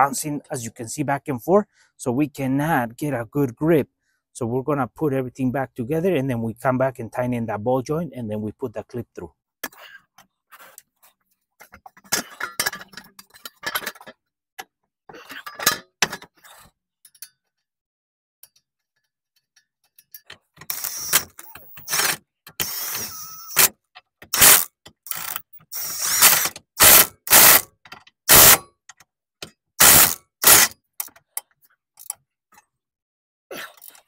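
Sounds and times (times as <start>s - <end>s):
impact wrench spinning and hammering: 20.6s - 27.7s, 28.3s - 28.6s, 29.8s - 31.2s.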